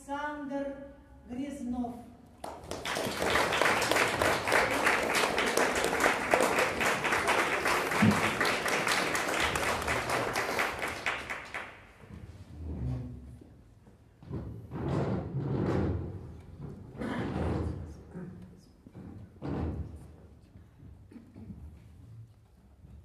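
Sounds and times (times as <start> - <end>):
audience applauding: 2.4 - 11.9.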